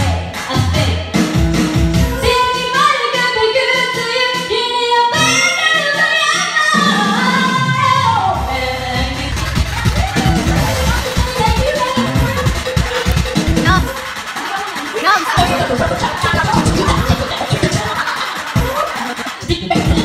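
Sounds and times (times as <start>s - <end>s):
woman singing karaoke: 2.1s - 10.0s, 13.6s - 13.9s, 15.0s - 18.0s
backing track: 8.2s - 20.0s.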